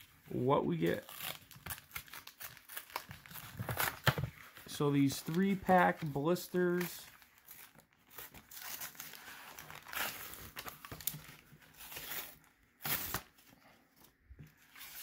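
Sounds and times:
foil packs crinkling: 0.3 - 13.4
cardboard tearing: 0.9 - 4.3, 7.3 - 13.4.

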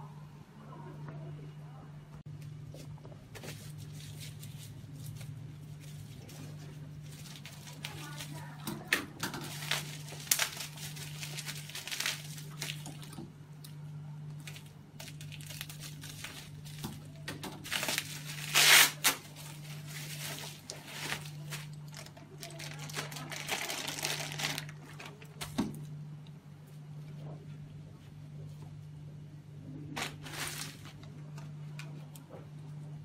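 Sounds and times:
plastic crinkling and rustling: 3.3 - 13.3, 14.3 - 25.9, 30.0 - 31.6.

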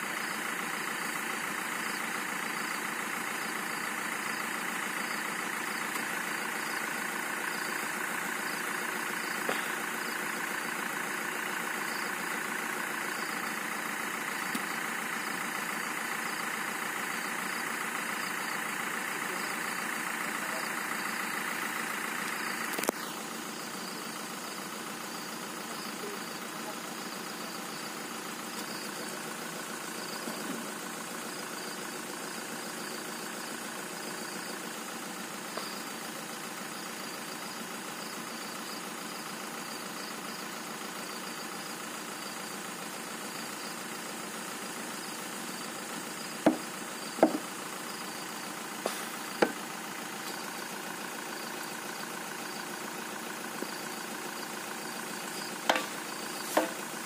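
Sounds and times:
vehicle engine idling: 0.0 - 57.0
sharp knocks: 46.4 - 47.4, 55.7 - 55.9.

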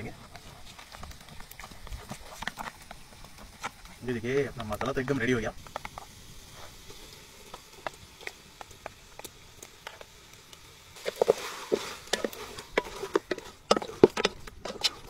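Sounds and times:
spoon scraping a plate: 11.0 - 15.0.

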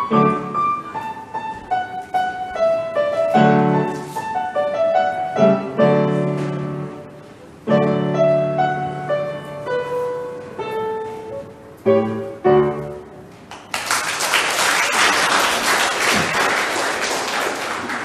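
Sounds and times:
upright piano chords: 0.0 - 13.7
audience applauding: 13.5 - 18.0.

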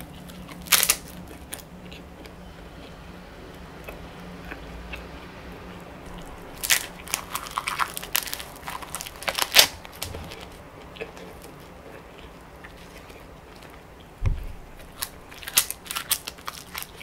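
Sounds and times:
crisp paper crunching: 0.0 - 1.3, 6.1 - 10.6, 14.7 - 17.0.

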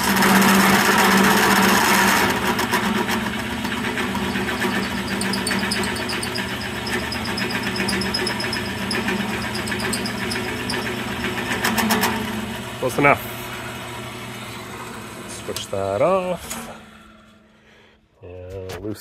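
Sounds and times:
drill press motor humming: 0.0 - 17.5
rapid high ticking of cutting: 4.3 - 10.9.

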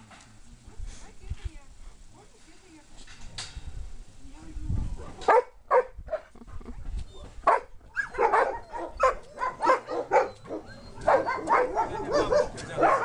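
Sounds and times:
dogs barking and yipping: 5.0 - 6.4, 7.0 - 13.0.

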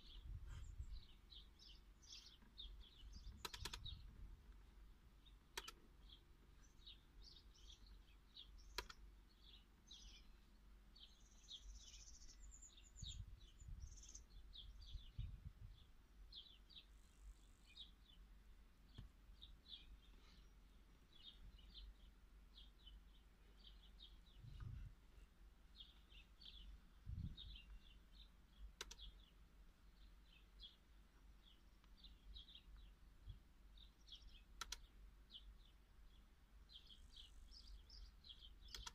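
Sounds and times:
faint bird chirps: 0.0 - 38.9
sharp clicks: 3.2 - 4.0, 5.5 - 5.9, 8.6 - 9.1, 28.7 - 29.2, 34.5 - 34.9, 38.6 - 38.9.

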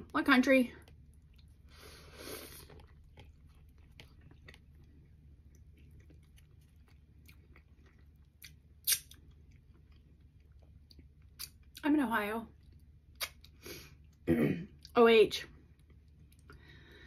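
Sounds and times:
crunching bite: 5.9 - 9.6
sharp mouth click: 8.9 - 9.1.

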